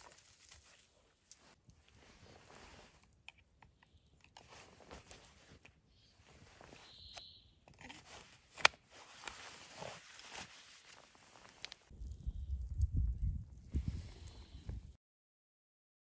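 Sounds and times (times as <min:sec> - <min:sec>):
clothing rustling: 0:00.0 - 0:03.1, 0:04.4 - 0:07.1, 0:07.8 - 0:11.9.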